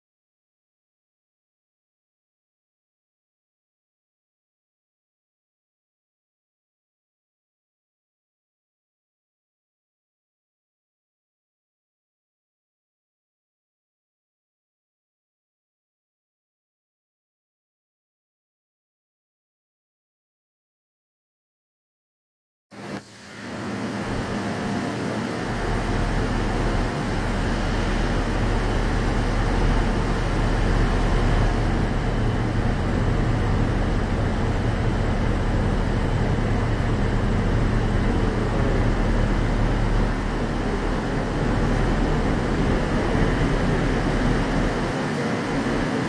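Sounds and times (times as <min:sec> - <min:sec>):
electric train humming: 0:22.8 - 0:46.0.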